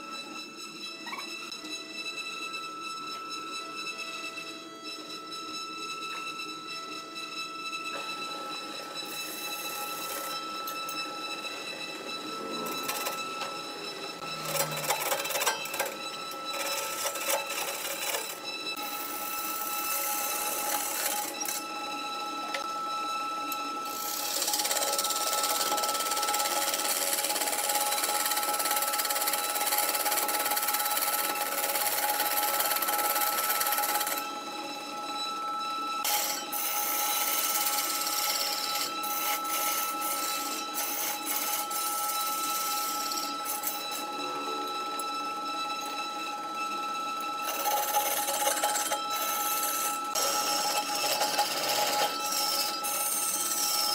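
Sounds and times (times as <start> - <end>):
lathe motor whine: 0.0 - 53.9
turning tool cutting wood: 12.0 - 21.8, 23.5 - 34.3, 36.0 - 45.1, 47.4 - 53.9.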